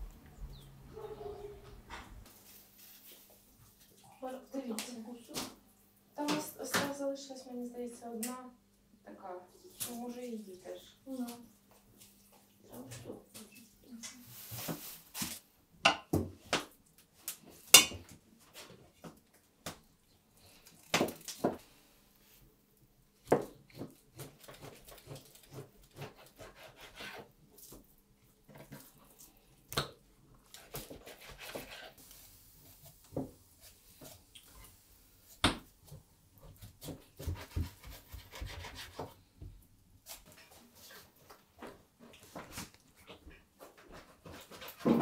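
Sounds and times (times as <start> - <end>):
knife scraping through meat: 24.2 - 27.4, 30.5 - 32.1.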